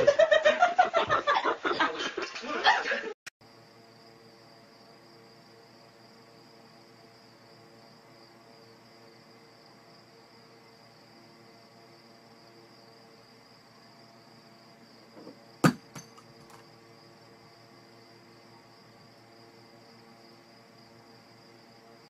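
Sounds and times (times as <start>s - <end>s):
sharp knock: 15.6s - 16.6s.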